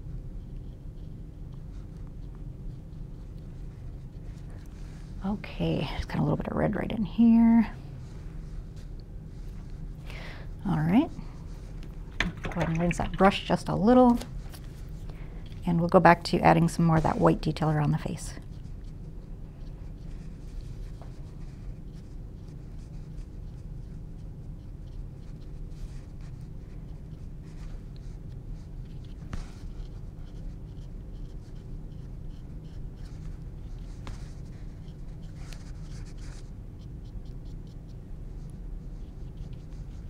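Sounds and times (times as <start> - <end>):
steady low hum: 0.0 - 40.0
paintbrush scratching on canvas: 15.8 - 40.0.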